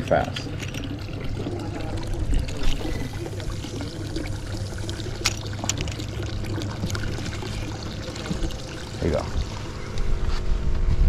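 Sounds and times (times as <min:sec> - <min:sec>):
water lapping against a boat: 0:00.0 - 0:10.5.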